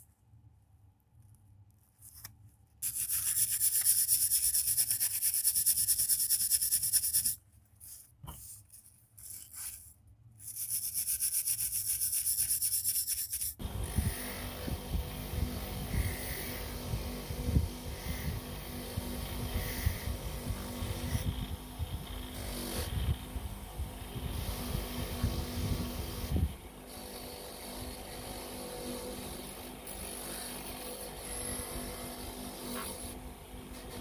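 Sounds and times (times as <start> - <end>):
buffing wheel motor humming: 13.6 - 23.0.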